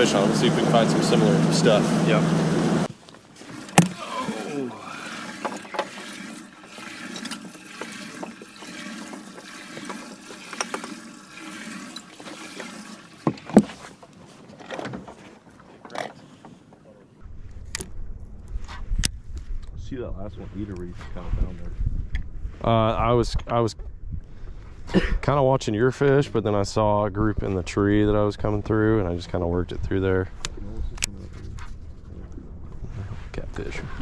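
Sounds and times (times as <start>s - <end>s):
water splashing and trickling: 2.8s - 15.8s.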